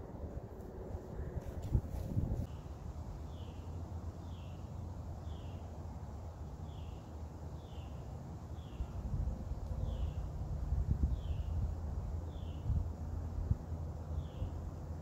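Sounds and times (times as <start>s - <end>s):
wind buffeting microphone: 0.0s - 2.5s, 10.4s - 13.6s.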